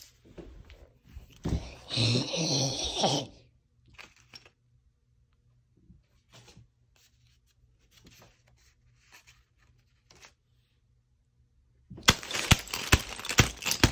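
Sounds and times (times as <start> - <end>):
paper and cardboard rustling: 6.2 - 10.6, 12.0 - 13.9.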